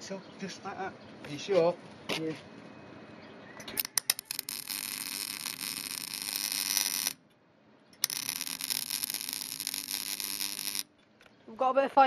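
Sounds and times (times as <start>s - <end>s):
welding arc crackling: 4.0s - 7.2s, 8.0s - 10.9s.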